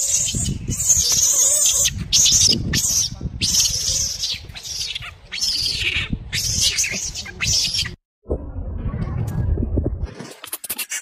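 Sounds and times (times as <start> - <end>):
baby monkey screaming: 0.0 - 8.0
low rumble: 8.2 - 10.2.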